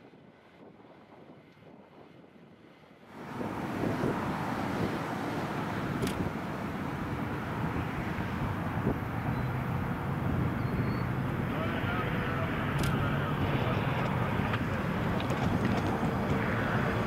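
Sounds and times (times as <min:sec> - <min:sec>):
truck engine and wheels rumbling: 0:00.3 - 0:17.0.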